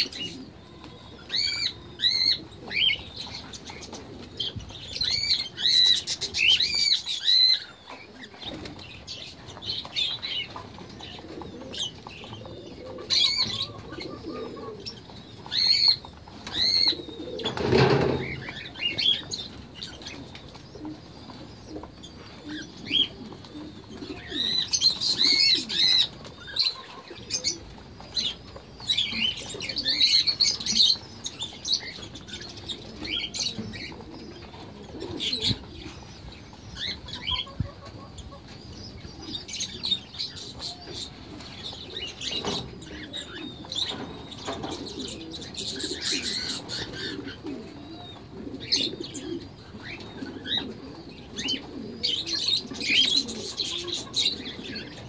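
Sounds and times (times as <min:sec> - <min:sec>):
birds chirping and calling: 0:00.0 - 0:55.0
doves cooing: 0:00.0 - 0:55.0.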